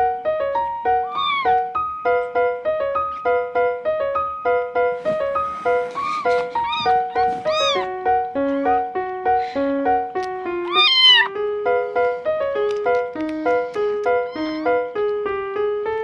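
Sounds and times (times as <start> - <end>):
piano background music: 0.0 - 16.0
kitten meowing: 1.0 - 1.8, 6.6 - 8.0, 10.6 - 11.4, 14.2 - 14.8.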